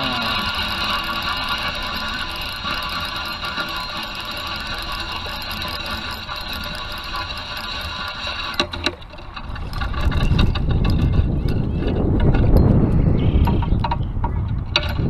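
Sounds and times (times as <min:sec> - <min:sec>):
fishing reel cranking: 0:00.0 - 0:15.0
wind rumbling on microphone: 0:09.2 - 0:15.0.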